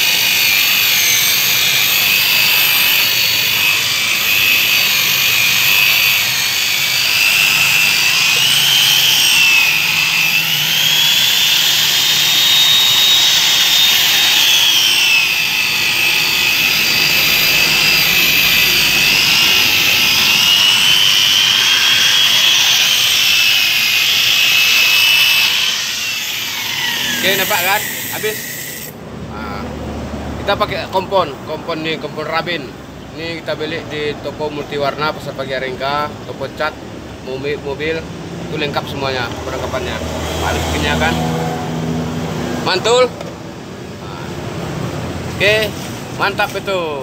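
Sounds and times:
car polisher motor whine: 0.0s - 29.0s, 38.6s - 47.0s.

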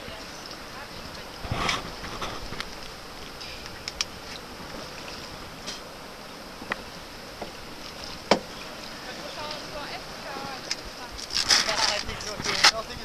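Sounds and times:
water lapping against hull: 0.0s - 13.0s
wind: 0.0s - 13.0s
sharp knocks on canoe: 8.2s - 8.5s.

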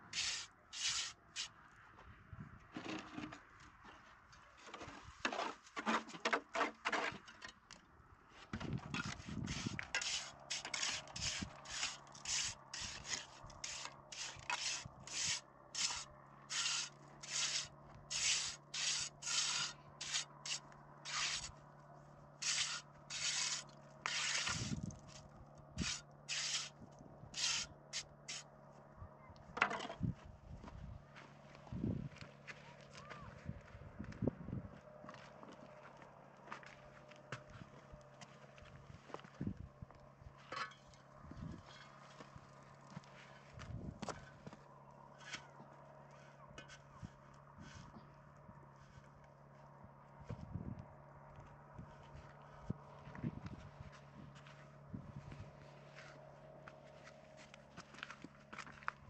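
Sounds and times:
rubbing strokes: 0.2s - 1.5s, 9.5s - 21.5s, 22.4s - 24.8s, 25.8s - 26.7s, 27.4s - 28.4s.

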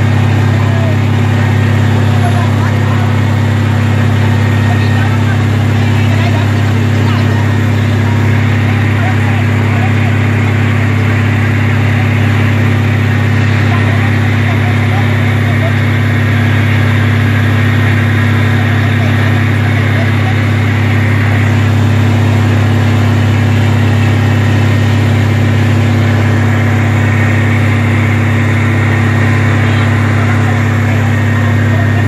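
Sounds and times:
engine running steadily: 0.0s - 32.0s.

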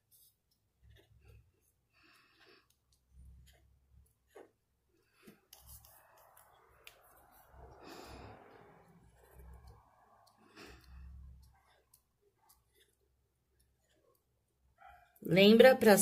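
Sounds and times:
marker tapping and scratching paper: 2.4s - 7.7s, 8.9s - 14.4s.

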